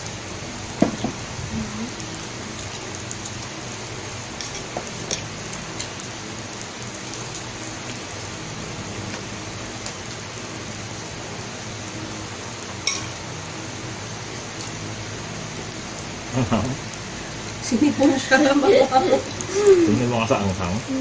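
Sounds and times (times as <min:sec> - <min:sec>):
meat sizzling on a grill plate: 0:00.0 - 0:21.0.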